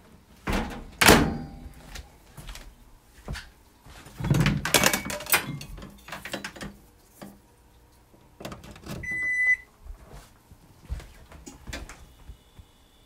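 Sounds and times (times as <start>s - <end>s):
kitchen items clattering: 4.1s - 6.8s
microwave beep: 9.0s - 9.7s.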